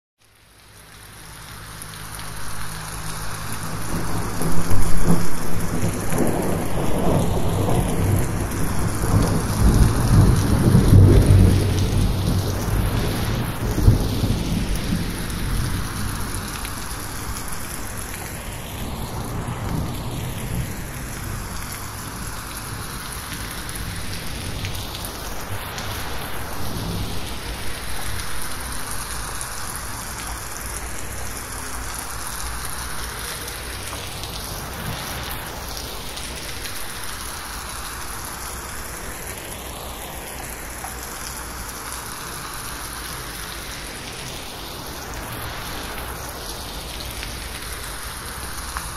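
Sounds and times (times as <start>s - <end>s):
heavy rain on metal roof: 0.2s - 48.9s
low thunder rumble: 3.7s - 17.7s.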